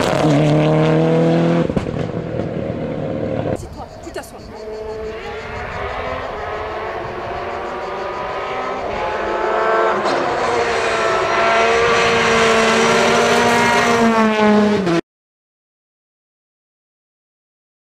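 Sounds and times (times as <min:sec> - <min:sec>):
rally car engine running hard: 0:00.0 - 0:03.6, 0:04.5 - 0:15.0.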